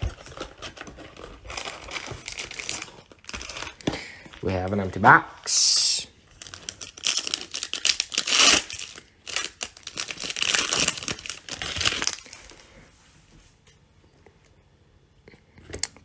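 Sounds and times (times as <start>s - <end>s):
foil wrapper crinkling: 0.0s - 3.9s, 6.3s - 12.6s.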